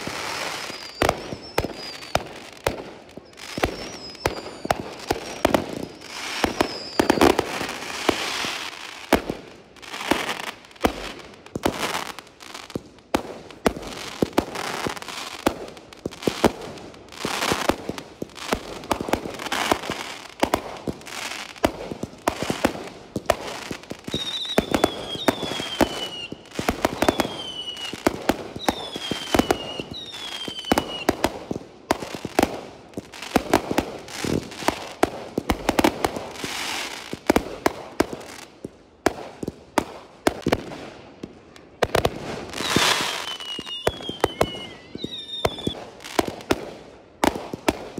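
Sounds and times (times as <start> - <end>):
falling firework whistles: 0.0 - 9.0, 23.4 - 31.3, 42.0 - 46.5
fireworks bangs and crackling: 0.0 - 47.9.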